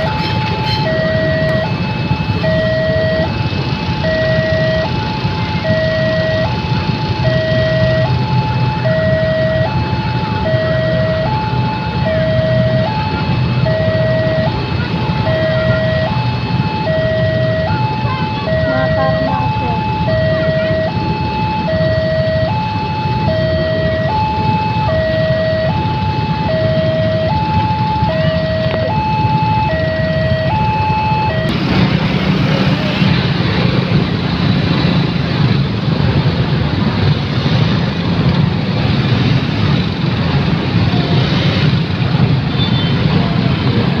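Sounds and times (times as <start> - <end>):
motorcycle engines pulling away: 7.2 - 44.0
level crossing alarm ding-dong: 16.9 - 21.0.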